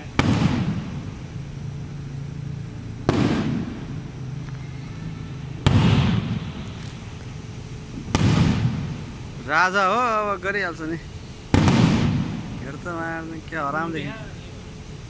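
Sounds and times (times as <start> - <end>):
firework shells bursting: 0.0 - 2.1, 2.9 - 4.4, 5.6 - 9.4, 11.3 - 13.5.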